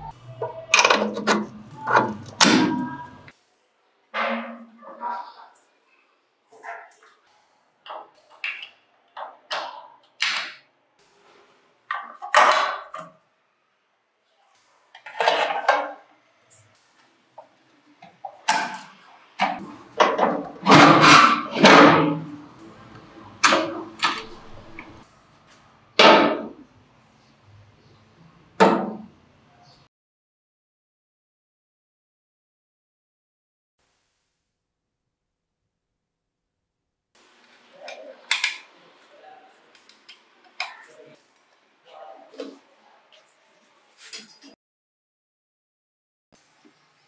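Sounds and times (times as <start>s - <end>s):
metal and plastic parts scraping: 0.7s - 3.0s.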